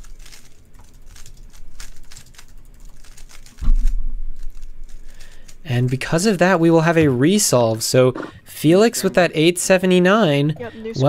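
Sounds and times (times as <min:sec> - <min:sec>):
heavy low thump: 0:03.6 - 0:04.4.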